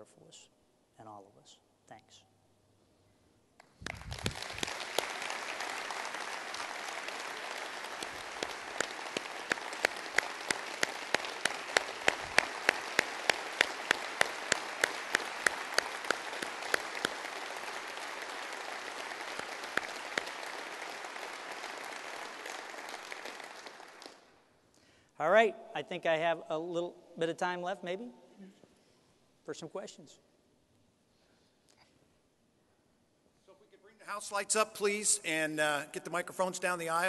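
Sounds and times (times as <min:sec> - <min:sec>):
audience applauding: 0:03.6 - 0:24.3
loud close claps: 0:03.6 - 0:24.4.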